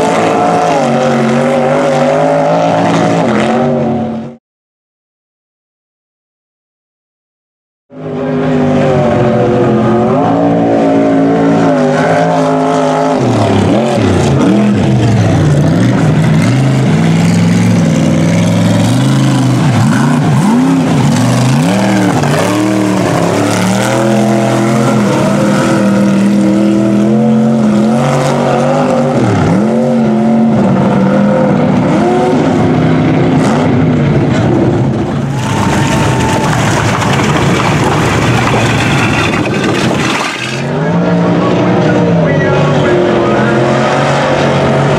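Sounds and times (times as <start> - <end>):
truck engines revving: 0.0 - 4.4, 7.9 - 44.9
tyres spinning in mud: 35.0 - 40.8.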